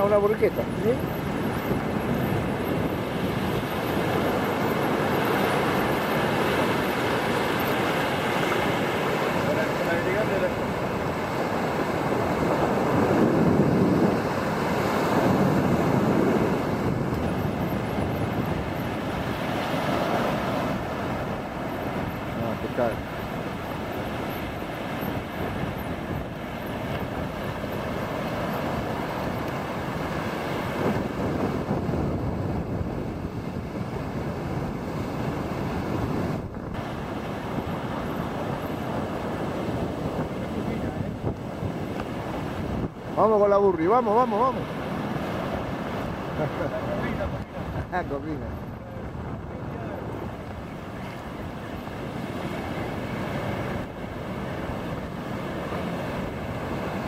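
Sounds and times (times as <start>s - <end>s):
surf breaking on beach: 0.0s - 57.0s
wind buffeting microphone: 0.0s - 57.0s.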